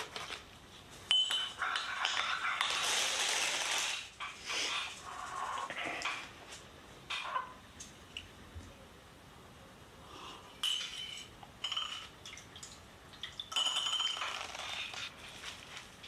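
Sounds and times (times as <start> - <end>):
spoon clinking on ceramic mug: 10.6 - 12.1.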